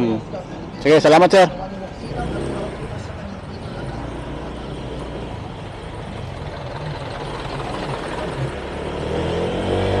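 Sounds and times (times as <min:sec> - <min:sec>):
motorcycle engine running: 0:03.6 - 0:10.0.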